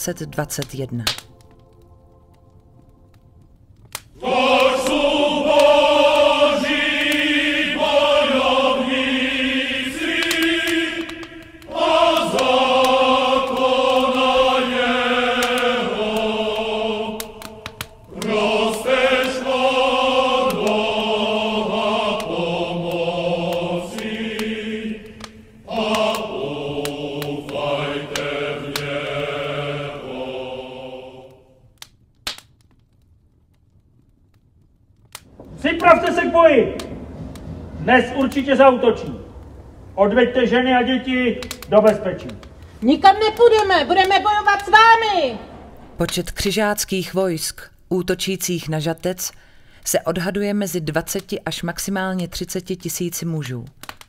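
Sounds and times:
choir chanting: 0:04.1 - 0:31.7, 0:35.3 - 0:46.0.

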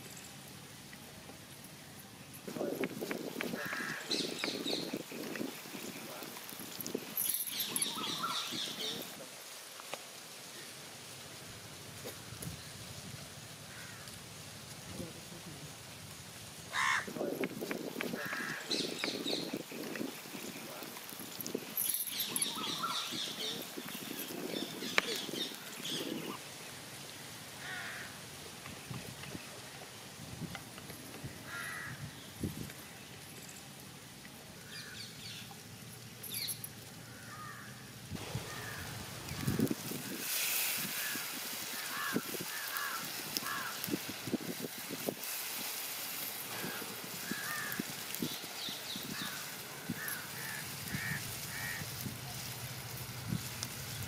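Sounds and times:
birds calling: 0:01.5 - 0:09.2, 0:16.7 - 0:30.1, 0:30.7 - 0:33.8, 0:34.5 - 0:44.7, 0:46.1 - 0:53.0
bird calling: 0:02.6 - 0:09.2, 0:16.7 - 0:20.9, 0:21.7 - 0:26.4
crows cawing: 0:03.5 - 0:04.6, 0:13.7 - 0:14.2, 0:16.7 - 0:17.2, 0:18.1 - 0:19.3, 0:27.6 - 0:28.2, 0:31.3 - 0:32.1, 0:37.0 - 0:39.6, 0:40.9 - 0:43.9, 0:46.5 - 0:48.0, 0:49.1 - 0:51.9.

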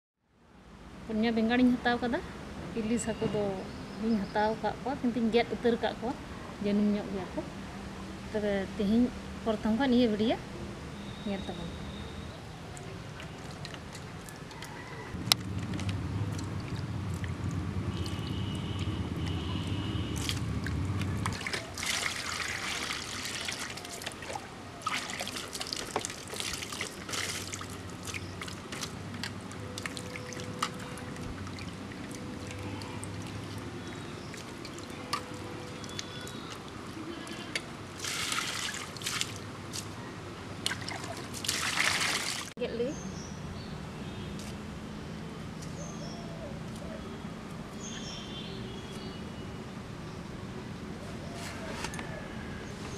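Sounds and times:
water splashing in a steel bowl: 0:20.1 - 0:36.6, 0:38.0 - 0:39.5, 0:40.7 - 0:42.5.

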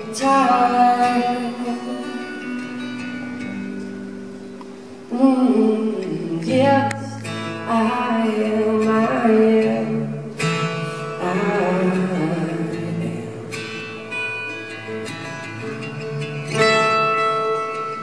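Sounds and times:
acoustic guitar strummed and picked: 0:00.0 - 0:18.0.

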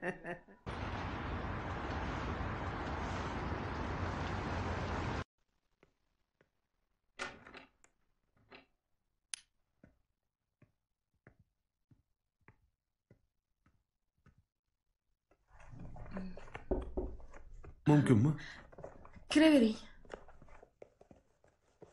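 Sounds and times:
footsteps of shoes on floor: 0:18.6 - 0:21.9.

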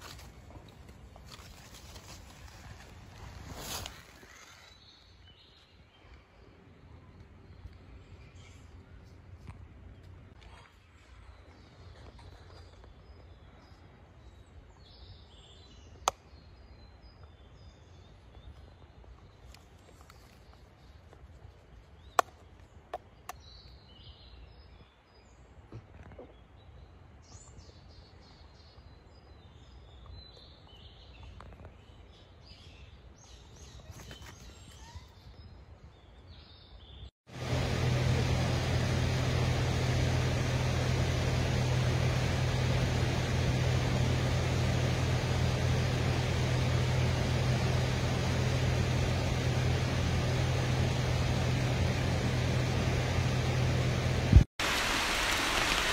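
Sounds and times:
rushing mountain stream: 0:54.6 - 0:55.9.

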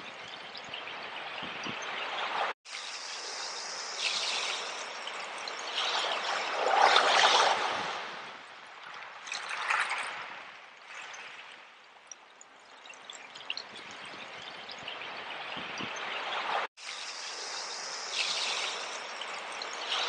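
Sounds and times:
water hissing through shells: 0:02.7 - 0:07.2, 0:16.8 - 0:20.0.

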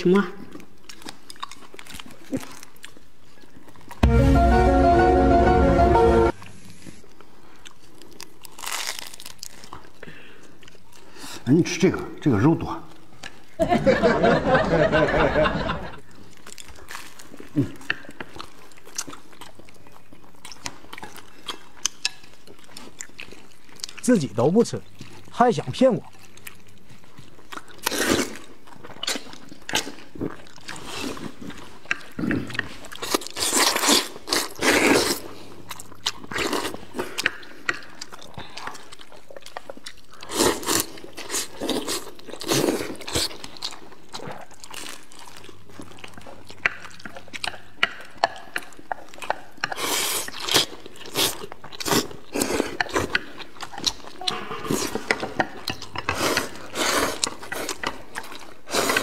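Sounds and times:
chewing: 0:00.4 - 0:04.0, 0:06.8 - 0:11.5, 0:16.0 - 0:59.0
people slurping noodles: 0:32.1 - 0:35.6, 0:49.7 - 0:53.3, 0:54.2 - 0:57.8, 0:58.6 - 0:59.0.

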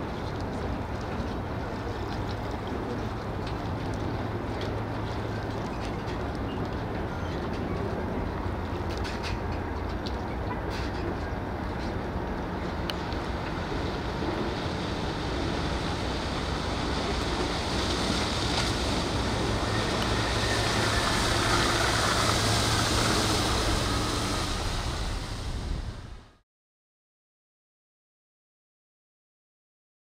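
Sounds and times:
rush of wind and water: 0:00.0 - 0:26.4
low electric motor hum: 0:12.1 - 0:26.3.

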